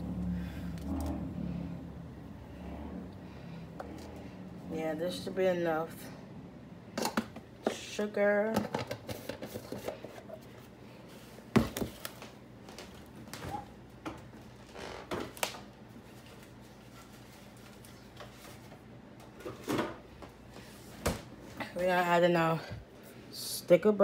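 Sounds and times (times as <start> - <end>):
kitchen items knocking and rustling: 6.9 - 10.6, 11.5 - 12.3, 18.1 - 20.4.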